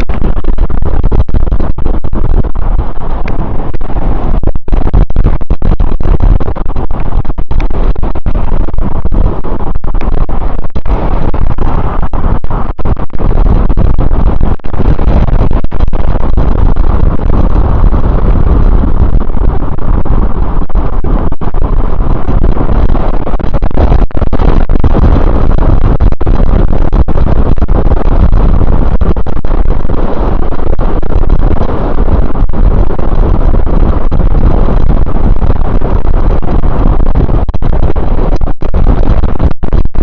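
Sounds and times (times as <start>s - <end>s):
wind buffeting microphone: 0.0s - 40.0s.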